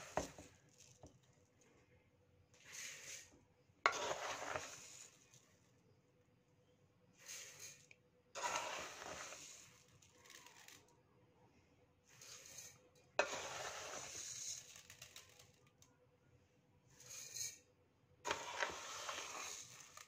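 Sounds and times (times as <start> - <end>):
cup scooping rice: 0.0 - 1.2, 2.6 - 5.4, 7.2 - 10.9, 12.1 - 15.6, 18.3 - 20.0
rice poured into steel bowl: 0.0 - 1.5, 2.6 - 5.6, 7.2 - 10.9, 12.1 - 15.6, 18.3 - 20.0.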